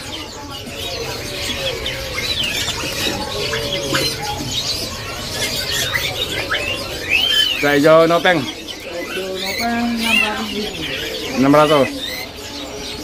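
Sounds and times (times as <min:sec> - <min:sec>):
songbirds chirping and whistling: 0:00.0 - 0:13.0.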